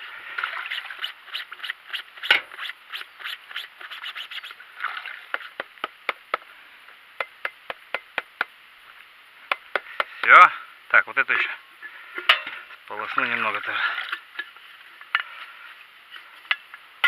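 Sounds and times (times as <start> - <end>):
oil filter scrubbed by hand: 0.3 - 4.6.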